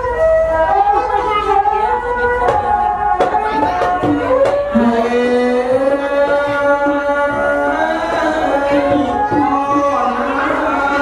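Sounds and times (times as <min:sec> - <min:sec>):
instrumental accompaniment: 0:00.0 - 0:11.0
man singing into a microphone: 0:04.3 - 0:11.0.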